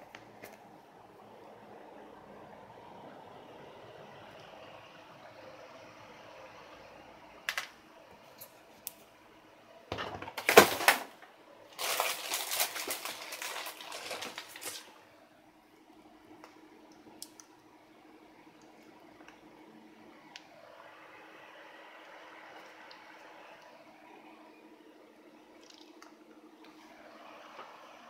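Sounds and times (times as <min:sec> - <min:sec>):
faint steady hum: 0:00.0 - 0:28.0
rustling and scraping handling noise: 0:11.8 - 0:15.0.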